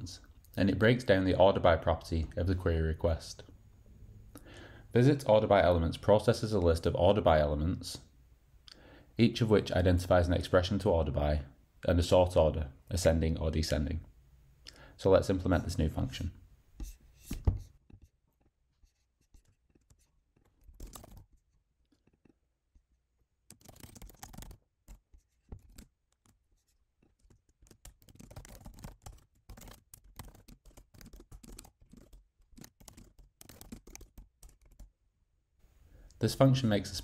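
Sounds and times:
faint keyboard typing: 16.8 - 22.4, 23.4 - 34.9.

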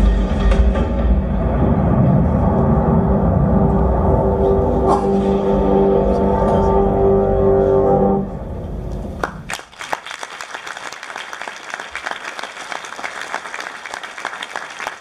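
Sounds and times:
sustained music tones: 0.0 - 9.2
audience applauding: 9.2 - 15.0.

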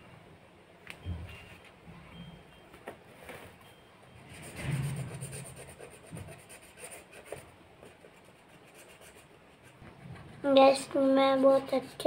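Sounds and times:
marker scratching on paper: 4.4 - 12.0.

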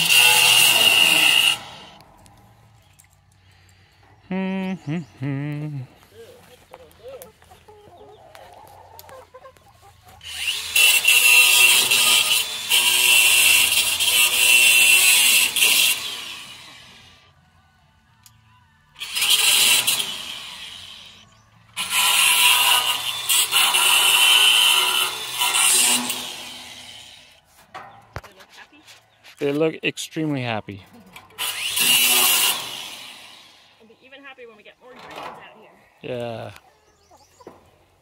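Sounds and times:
power tool running: 0.0 - 2.1, 10.2 - 17.2, 19.0 - 21.2, 21.8 - 27.3, 31.3 - 33.8.

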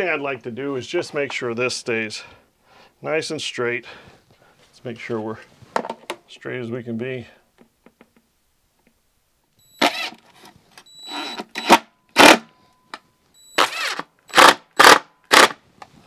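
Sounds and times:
cordless drill driving screws: 9.8 - 10.3, 13.6 - 15.6.

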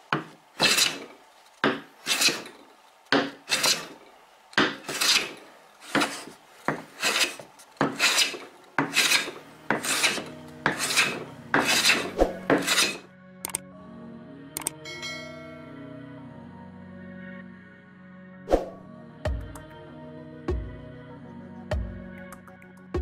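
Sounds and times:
hand plane swishing on wood: 0.2 - 2.6, 3.2 - 4.0, 4.6 - 13.1.

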